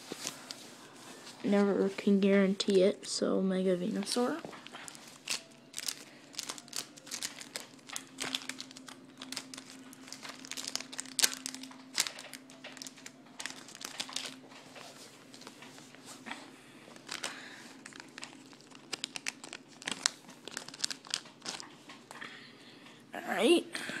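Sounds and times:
foil wrapper crinkling: 4.5 - 15.8, 17.0 - 22.2.

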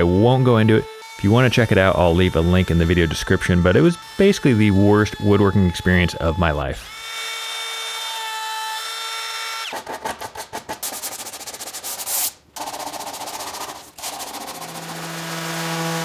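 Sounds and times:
power tool whine: 0.0 - 9.6, 14.0 - 16.0.

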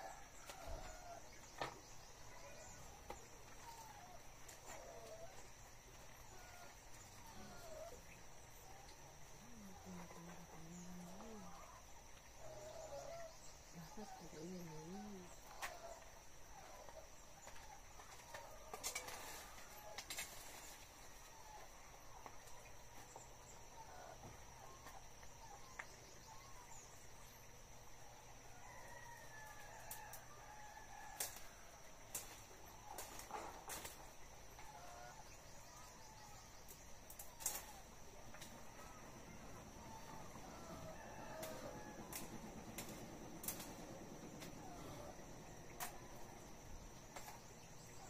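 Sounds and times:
rooster crowing: 39.0 - 43.0.

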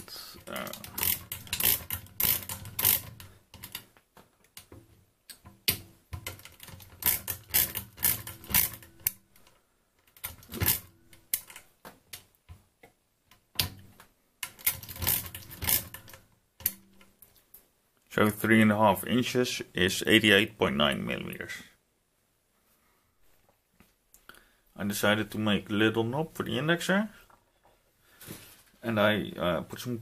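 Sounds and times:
mechanical calculator ratcheting clicks: 0.4 - 3.8, 6.2 - 11.6, 14.4 - 16.8.

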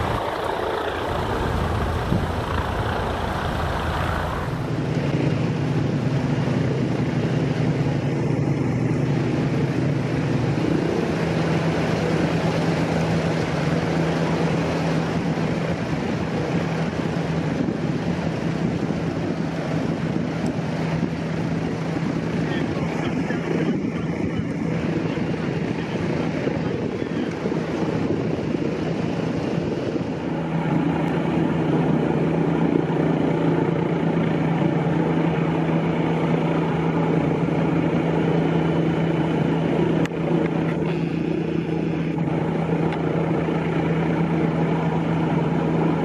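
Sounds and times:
loud rushing noise: 0.0 - 5.5
low engine drone: 0.0 - 46.0.

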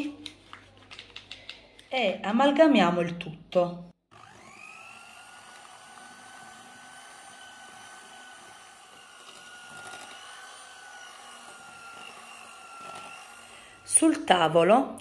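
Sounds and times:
electric hand mixer whining: 4.0 - 14.9.

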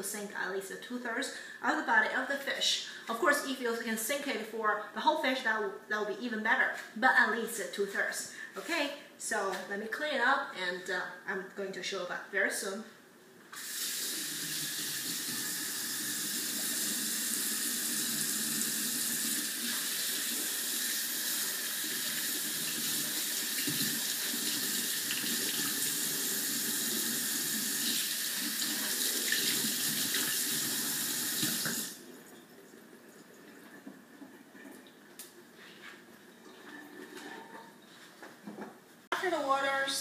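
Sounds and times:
faucet water splashing into sink: 13.6 - 32.5.

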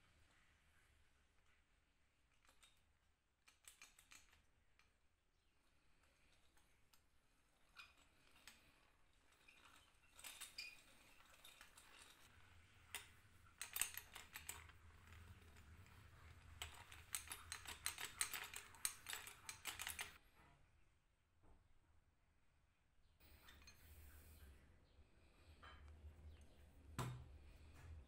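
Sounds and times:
small metallic clicks and rattles: 2.3 - 5.0, 5.7 - 20.2.

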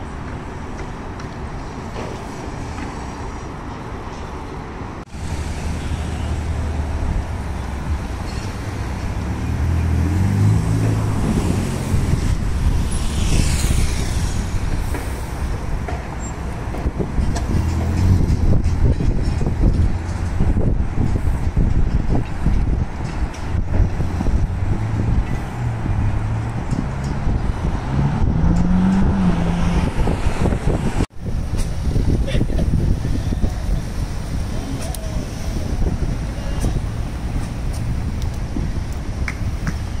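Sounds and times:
street traffic: 0.0 - 40.0
sports car engine accelerating: 9.2 - 15.1, 24.1 - 30.9.

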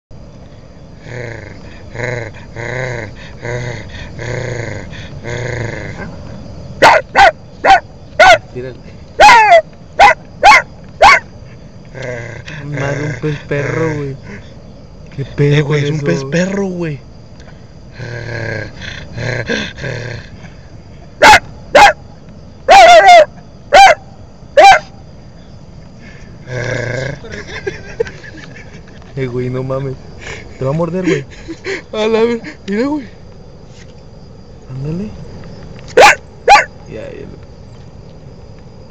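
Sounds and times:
dog yelping: 6.8 - 8.4, 9.2 - 11.3, 21.2 - 22.0, 22.7 - 24.0, 24.6 - 24.9, 36.0 - 36.7.

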